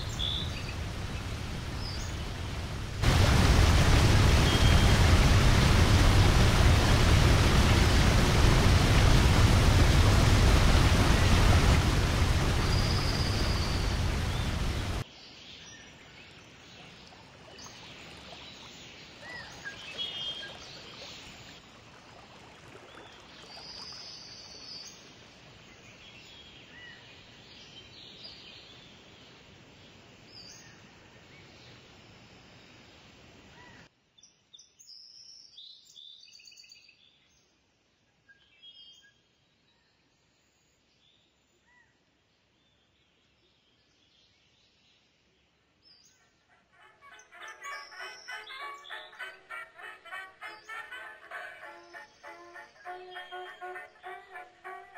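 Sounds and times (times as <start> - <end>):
birds chirping: 0.0 - 15.0, 46.4 - 54.9
rain: 0.0 - 15.1, 16.8 - 26.1, 46.8 - 54.9.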